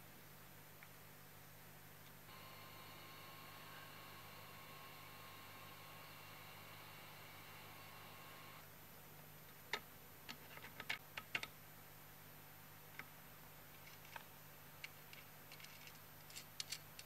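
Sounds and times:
small metal parts clicking: 15.1s - 17.0s.

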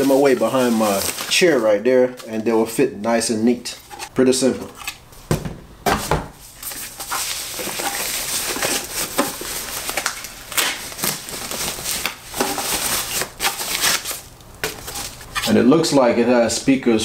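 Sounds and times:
packaging wrap crinkling: 0.0s - 2.6s, 6.4s - 15.5s.

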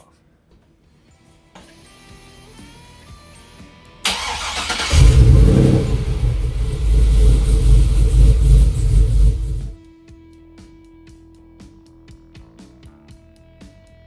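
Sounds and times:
engine cranking: 4.1s - 9.7s
engine running unevenly: 4.8s - 9.8s.

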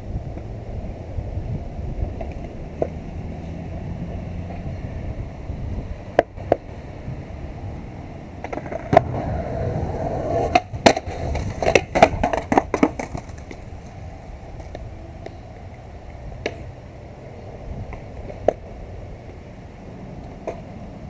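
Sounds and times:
skateboard wheels rolling on concrete: 0.0s - 21.0s
skateboard clacking on ground: 2.0s - 3.1s, 6.1s - 6.7s, 8.4s - 16.8s, 17.4s - 19.4s, 20.2s - 21.0s.

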